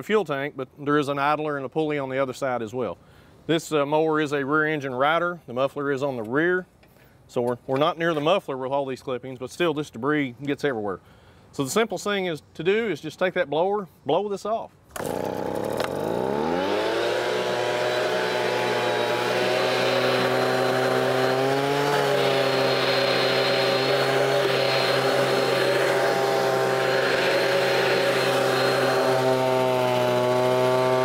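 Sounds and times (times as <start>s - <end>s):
leaf blower running: 14.9s - 31.0s.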